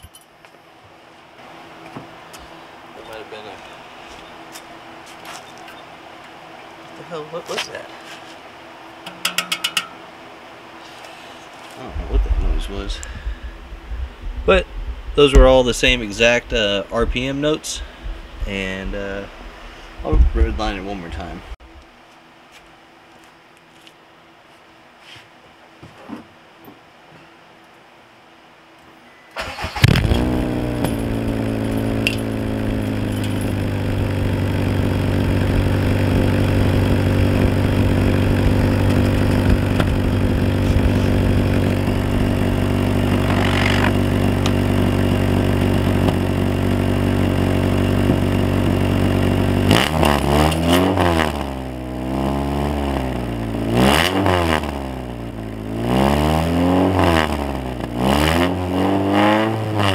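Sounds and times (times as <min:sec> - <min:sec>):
car engine idling and revving: 0:29.5 - 0:59.9.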